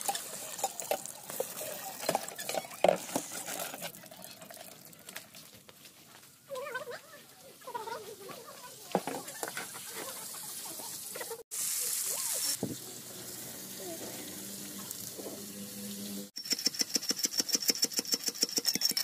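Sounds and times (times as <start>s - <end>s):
hiss: 11.5s - 16.0s.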